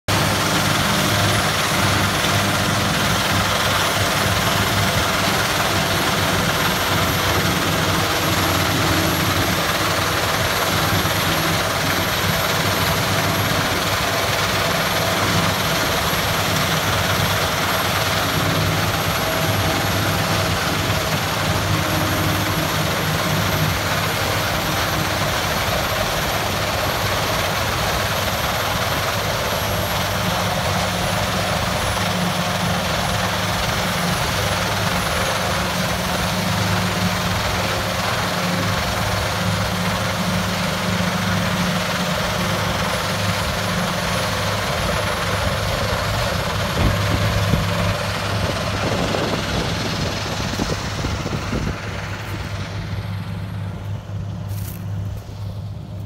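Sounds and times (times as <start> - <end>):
harvester machinery drone: 0.1 - 56.0.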